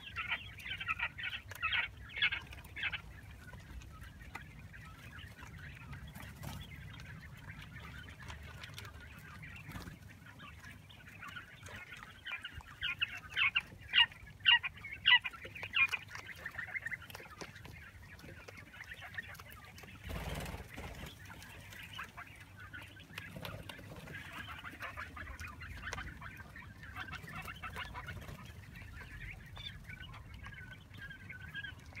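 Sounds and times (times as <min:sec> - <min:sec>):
quail chicks peeping and chirping: 0:00.0 - 0:32.0.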